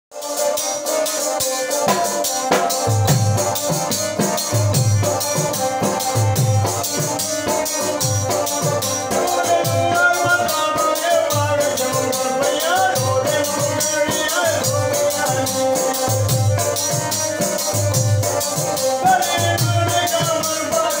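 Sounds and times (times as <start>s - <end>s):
steady low drum beat: 1.9s - 9.1s.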